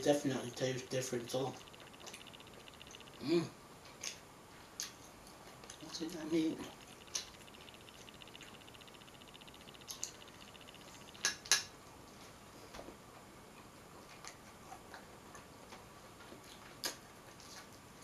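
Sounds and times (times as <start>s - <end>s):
faint fast ticking: 0.0s - 3.5s, 5.6s - 11.8s
chewing clicks and smacks: 1.5s - 3.2s, 4.8s - 6.0s, 6.7s - 11.7s, 13.6s - 17.8s.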